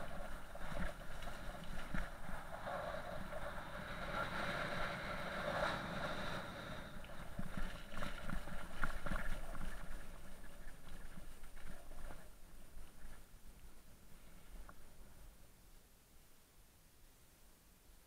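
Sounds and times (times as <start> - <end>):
bicycle tyres hissing on wet track: 0.0 - 8.0
wind: 0.0 - 18.0.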